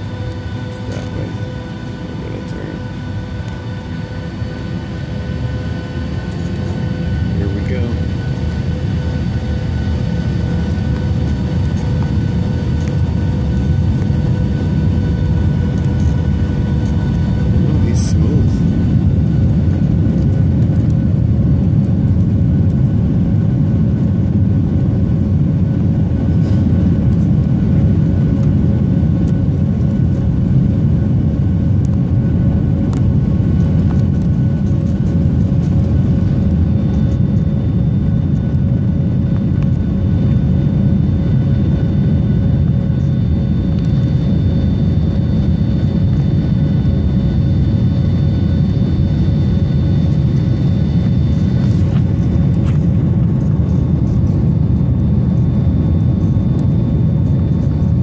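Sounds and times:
jet engines and cabin rumble: 0:00.0 - 0:58.0
faint high whine: 0:32.2 - 0:58.0.

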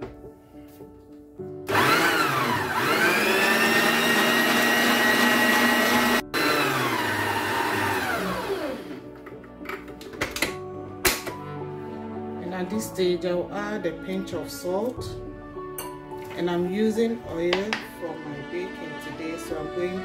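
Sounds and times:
stand mixer whisking: 0:01.7 - 0:09.0.

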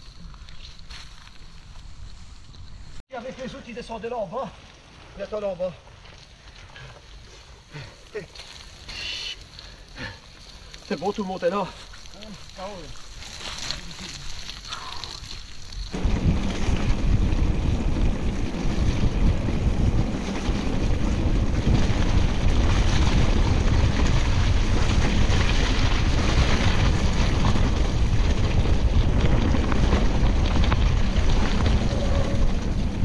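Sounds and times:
wind buffeting microphone: 0:15.9 - 0:33.0.

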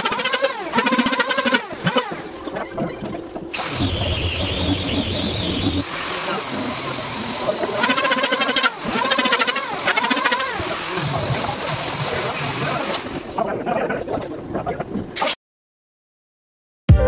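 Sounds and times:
power tool cutting wood: 0:00.0 - 0:02.4, 0:03.6 - 0:13.3
steady high machine whine: 0:00.6 - 0:13.5.

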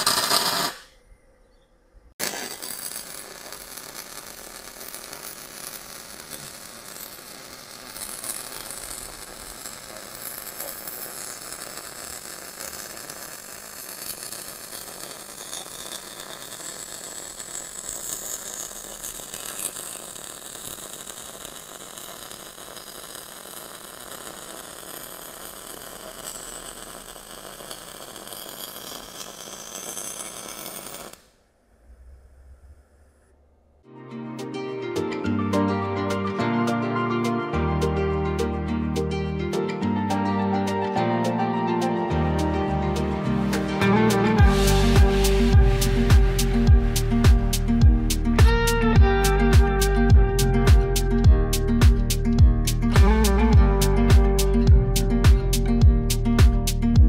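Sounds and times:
welding arc crackling: 0:00.0 - 0:00.9, 0:02.2 - 0:31.4, 0:43.4 - 0:57.0.

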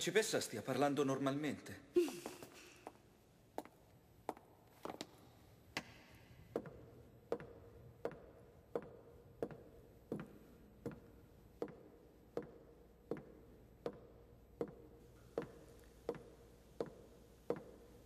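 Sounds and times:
footsteps on wooden floor: 0:05.8 - 0:17.9.

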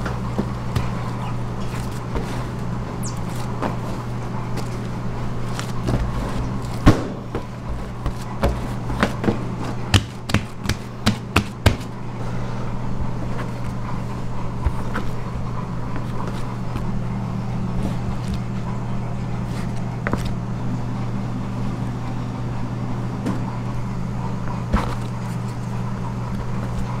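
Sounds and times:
dough handling on steel table: 0:00.0 - 0:12.0
steady low hum: 0:00.0 - 0:27.0
sharp slaps and knocks: 0:06.8 - 0:11.9
dough knocking on table: 0:06.8 - 0:12.0.

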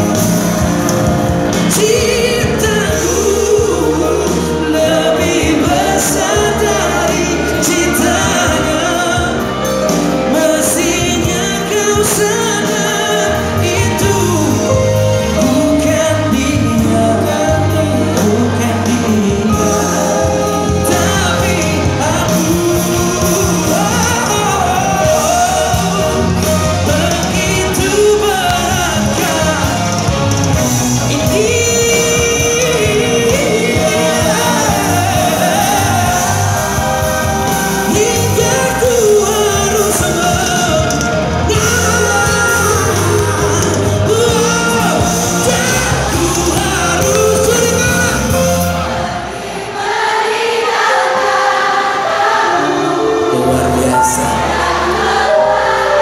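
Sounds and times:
man singing: 0:00.0 - 0:49.0, 0:52.5 - 0:56.0
pop-rock band playing: 0:00.0 - 0:56.0.

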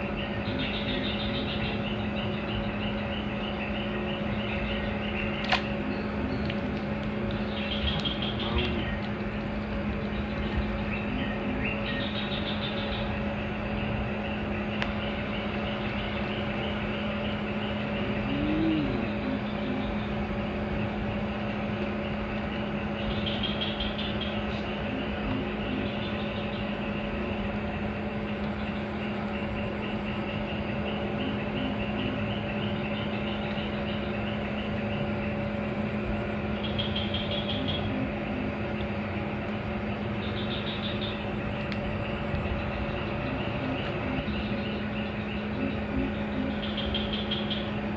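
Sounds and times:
constant low hum: 0:00.0 - 0:47.9
noisy haze: 0:00.0 - 0:47.9
faint chirps: 0:13.8 - 0:20.2.

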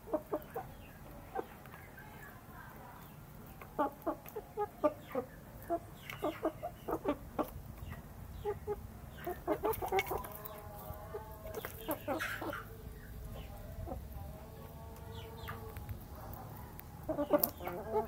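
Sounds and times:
chickens clucking: 0:00.0 - 0:18.0
beaks pecking metal bowl: 0:03.5 - 0:12.7, 0:14.6 - 0:18.0.

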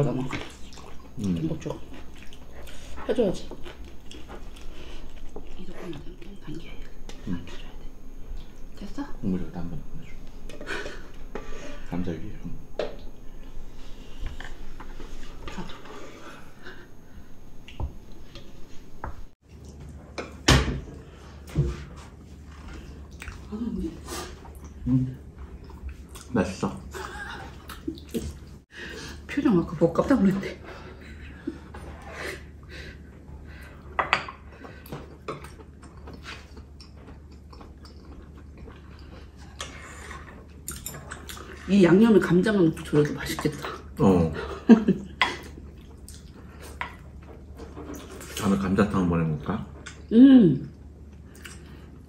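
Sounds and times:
quiet chewing: 0:00.3 - 0:08.9, 0:22.2 - 0:26.4, 0:32.6 - 0:41.7, 0:45.2 - 0:48.5, 0:50.7 - 0:52.0.

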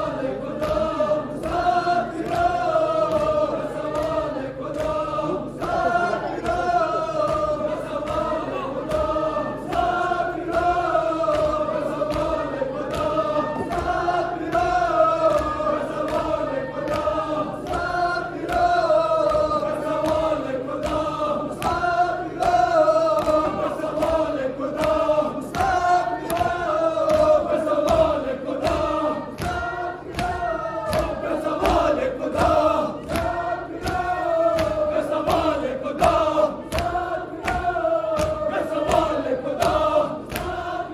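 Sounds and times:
crowd of men chanting: 0:00.0 - 0:40.9
rhythmic chest-beating slaps: 0:00.0 - 0:40.9.

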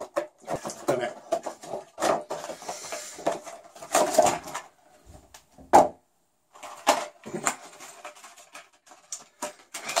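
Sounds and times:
plastic packaging crinkling: 0:06.5 - 0:10.0.

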